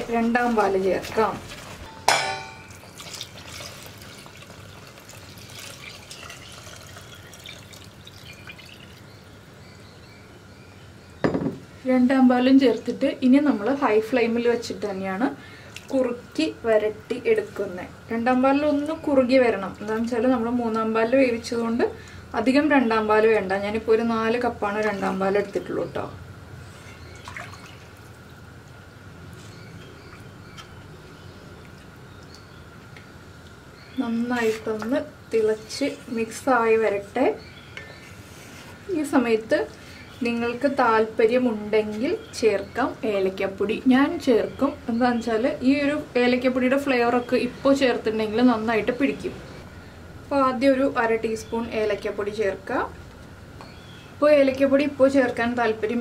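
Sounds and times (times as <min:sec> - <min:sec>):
liquid pouring into metal pot: 0:02.7 - 0:09.0
faint drips: 0:02.9 - 0:09.1, 0:15.4 - 0:16.2, 0:29.6 - 0:33.6.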